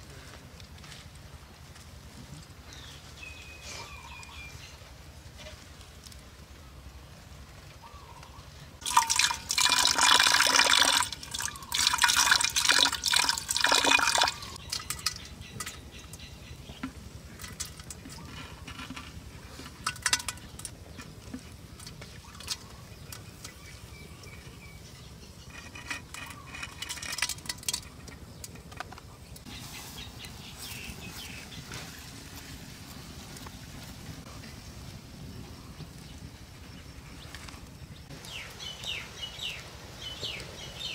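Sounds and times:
splashes and drips: 0:08.8 - 0:15.8
water pouring into clay pot: 0:08.8 - 0:15.8.

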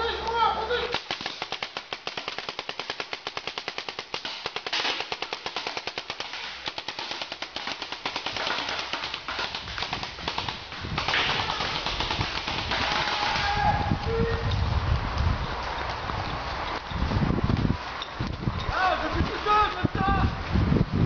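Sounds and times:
paintball markers firing: 0:00.9 - 0:13.5.

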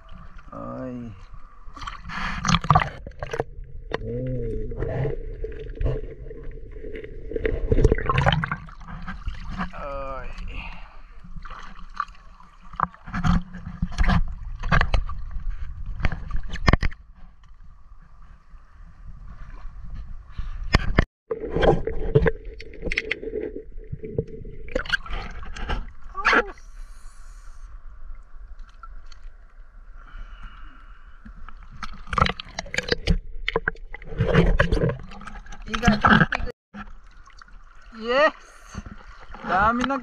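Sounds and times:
muffled underwater rumbling: 0:00.0 - 0:11.5
river water splashing: 0:05.4 - 0:13.7, 0:34.8 - 0:40.0.

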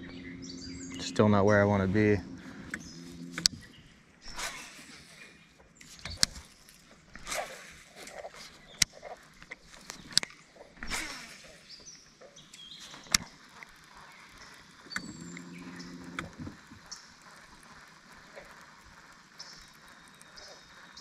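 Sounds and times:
faint bird chirps: 0:00.0 - 0:06.3
fishing reel clicks: 0:00.8 - 0:21.0.

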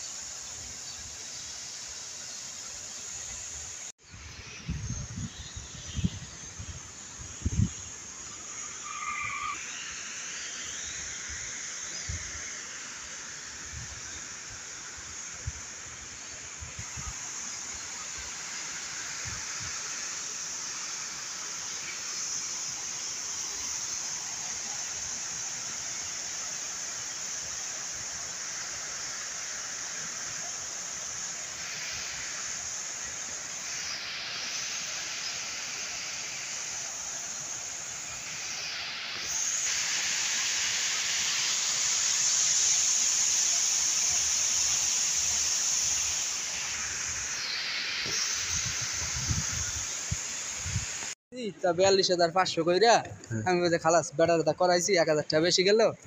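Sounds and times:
fountain water splashing: 0:17.3 - 0:49.2.

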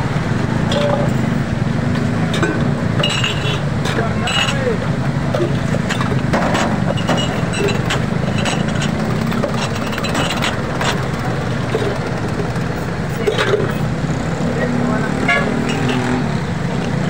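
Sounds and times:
idling engine hum: 0:00.0 - 0:17.0
steel mugs clinking on pot: 0:02.3 - 0:04.7, 0:06.0 - 0:11.0, 0:15.3 - 0:16.2.

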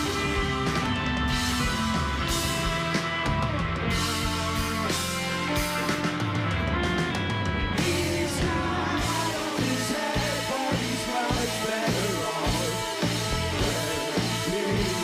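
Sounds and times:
person singing: 0:00.0 - 0:01.9, 0:07.7 - 0:15.0
rock band playing live: 0:00.0 - 0:15.0.

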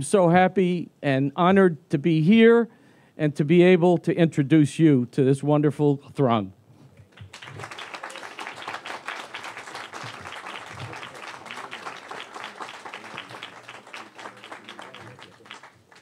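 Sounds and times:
crowd applauding: 0:07.1 - 0:16.0.

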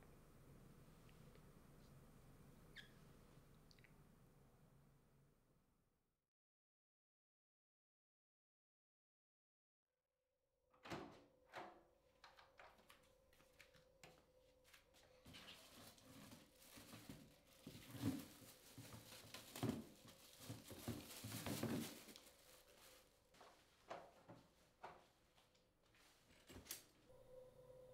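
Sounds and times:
faint steady hum: 0:00.0 - 0:05.8
plastic bag rustling: 0:14.7 - 0:24.8.

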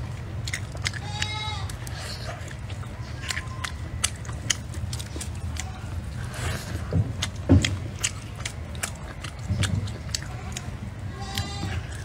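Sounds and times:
person chewing meat: 0:00.0 - 0:12.0
wet mouth clicks and smacks: 0:00.4 - 0:06.3, 0:07.2 - 0:10.8.

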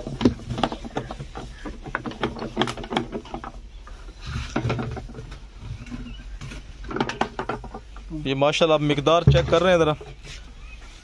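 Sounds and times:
knocks and thuds: 0:09.0 - 0:10.2.

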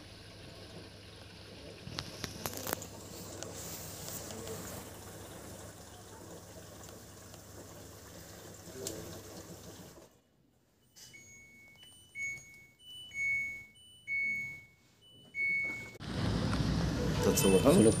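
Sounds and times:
control panel alarm beeping: 0:10.9 - 0:16.0.

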